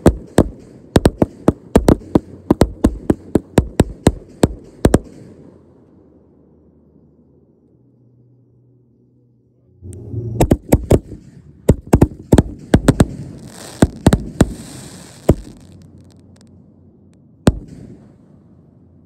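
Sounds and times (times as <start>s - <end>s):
fireworks bangs: 0.0s - 5.5s, 10.4s - 16.5s, 17.5s - 18.4s
fireworks crackling hiss: 12.9s - 16.5s.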